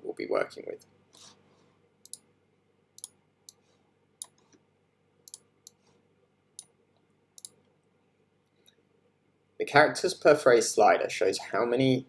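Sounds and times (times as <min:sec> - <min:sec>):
computer mouse clicking: 0:02.0 - 0:02.2, 0:05.3 - 0:05.8, 0:07.4 - 0:07.6.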